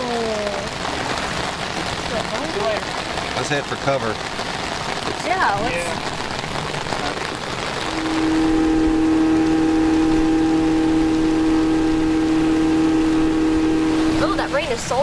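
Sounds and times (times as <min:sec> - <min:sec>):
heavy rain hitting river: 0:00.0 - 0:15.0
outboard motor running: 0:04.9 - 0:15.0.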